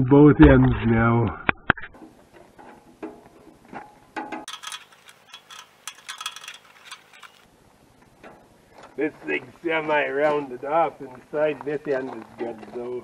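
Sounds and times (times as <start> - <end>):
metal hand tools clinking: 4.2 - 7.5.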